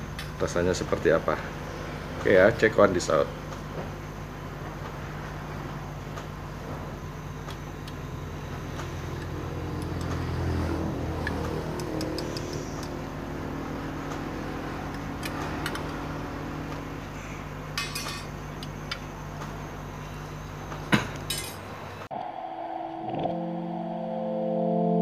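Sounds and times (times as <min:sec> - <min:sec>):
steady low hum: 0:00.0 - 0:24.2
metal spoon clinking on glass jars: 0:17.8 - 0:18.3, 0:21.3 - 0:21.6.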